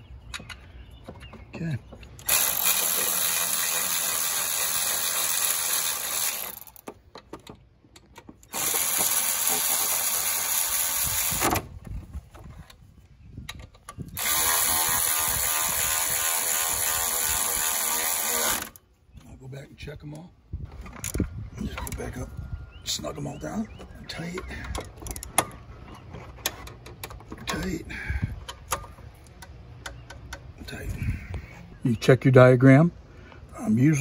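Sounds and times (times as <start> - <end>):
electric ratchet running bolts: 2.2 - 6.9, 8.4 - 11.6, 14.1 - 18.8.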